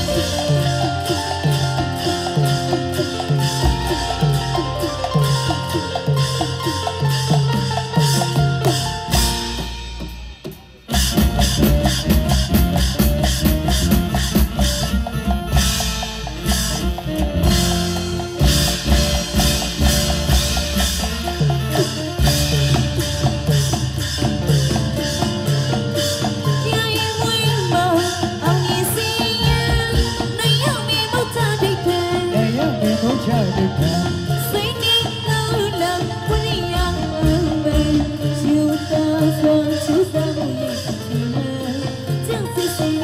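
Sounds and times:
percussion-heavy music: 0:00.0 - 0:43.0.

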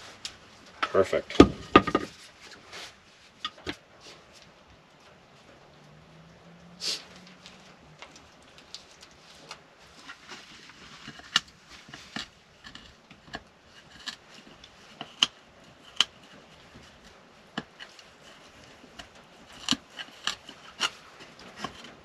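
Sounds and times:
dog gnawing on wood: 0:07.2 - 0:22.0.

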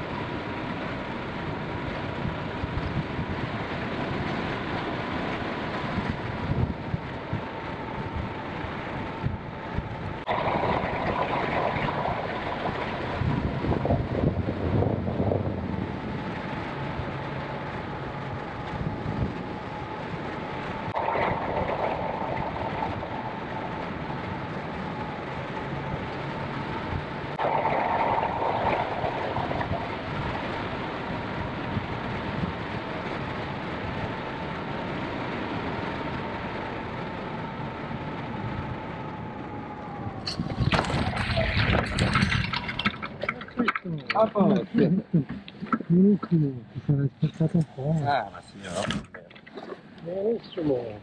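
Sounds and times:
air rushing over microphone: 0:09.2 - 0:17.3, 0:18.4 - 0:33.9.

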